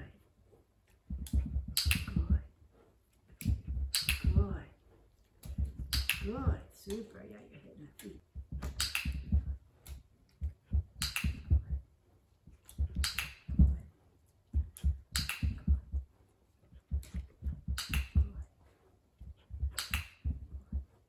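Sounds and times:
dog claws clicking: 0.8 - 2.5, 3.1 - 7.3, 7.9 - 11.8, 12.5 - 16.0, 16.6 - 21.0
dog paws thudding on carpet: 1.0 - 2.6, 3.3 - 4.7, 5.4 - 6.7, 8.2 - 11.9, 12.5 - 18.5, 19.2 - 21.0.

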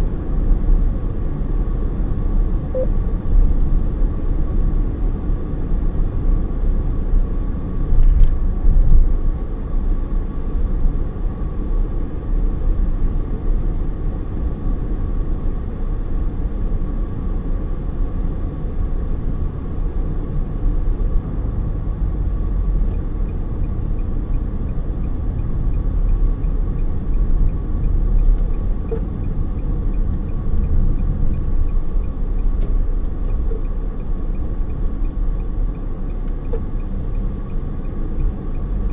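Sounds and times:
car road and engine rumble: 0.0 - 38.9
turn signal ticking: 22.7 - 38.9.

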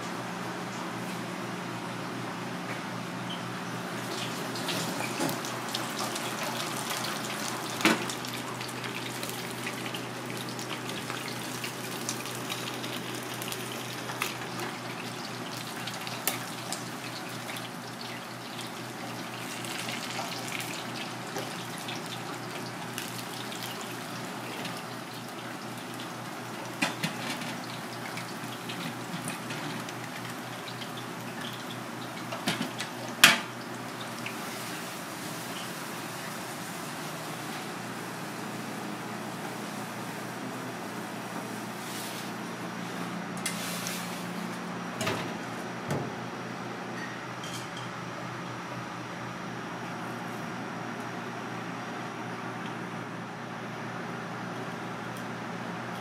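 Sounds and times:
water boiling in a pan: 3.9 - 37.2
fish sizzling in oil: 4.0 - 36.7.

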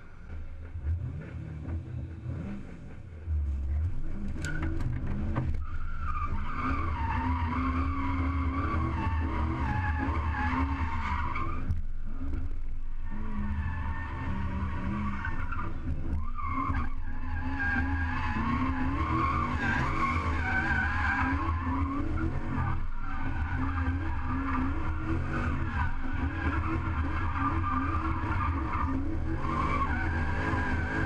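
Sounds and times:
car engine revving hard: 0.8 - 3.0.

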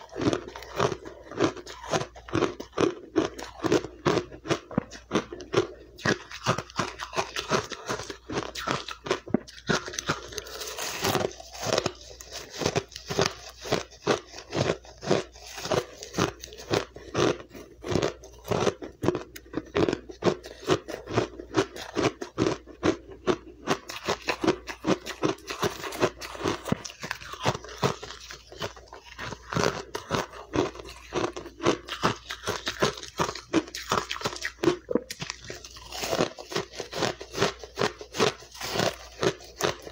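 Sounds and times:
ice being chewed: 0.0 - 39.9.

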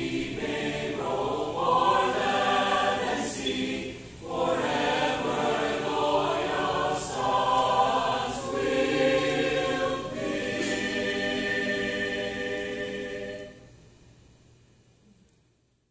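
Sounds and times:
mixed choir singing a hymn: 0.0 - 13.8.

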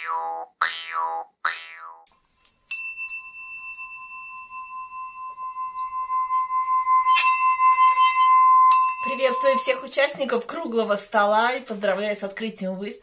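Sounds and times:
singing bowl ring from rubbed rim: 2.3 - 10.2
brass bell struck: 2.7 - 10.1.

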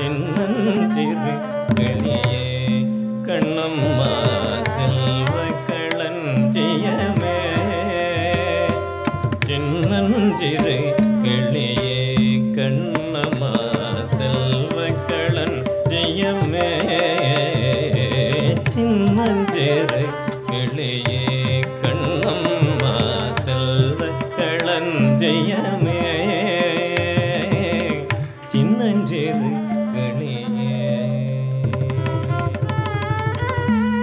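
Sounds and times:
mridangam drum strokes: 0.0 - 29.7, 30.5 - 34.0
man singing: 0.0 - 34.0
melodic accompaniment: 24.1 - 34.0.

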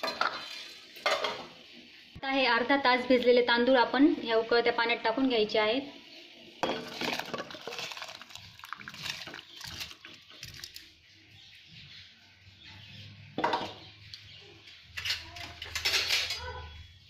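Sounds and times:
rice splashing into boiling water: 6.8 - 10.8.

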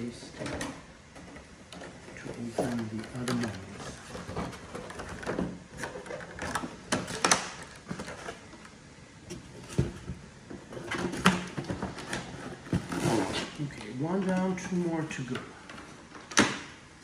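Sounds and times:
packaging rustling and scraping: 1.8 - 16.2.

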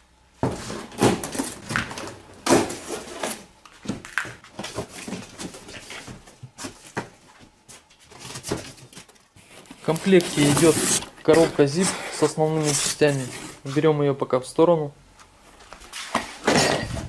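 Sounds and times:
cardboard box being unpacked: 8.1 - 13.6.

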